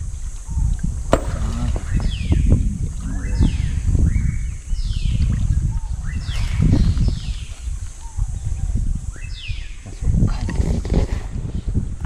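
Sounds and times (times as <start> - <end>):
sharp knock: 1.1 - 2.2
bird falling call: 1.1 - 3.7.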